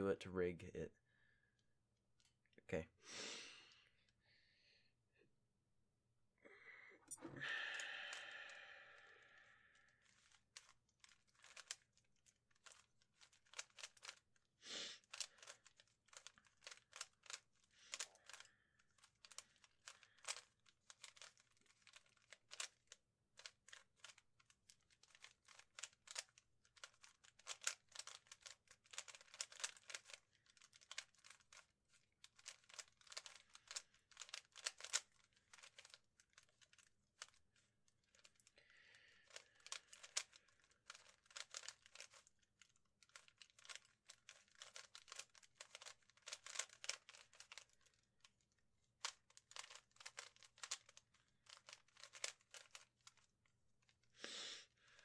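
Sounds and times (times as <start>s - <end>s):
plastic cube clicking: 10.0s - 11.8s, 12.6s - 14.2s, 15.0s - 18.4s, 19.0s - 37.4s, 39.2s - 42.3s, 43.1s - 48.0s, 49.0s - 53.2s.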